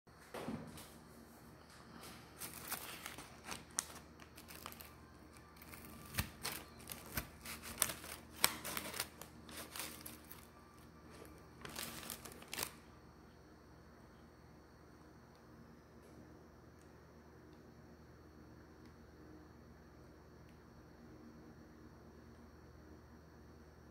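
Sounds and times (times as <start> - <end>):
paper bag crinkling: 1.9 - 12.8.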